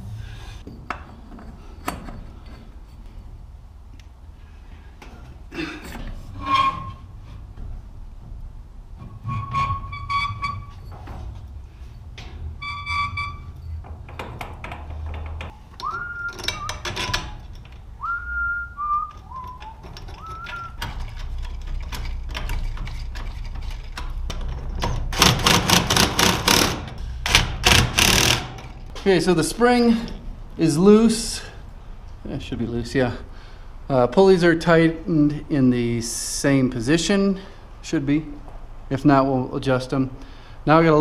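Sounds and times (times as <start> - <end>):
man whistling: 15.8 - 16.9, 18.0 - 20.8.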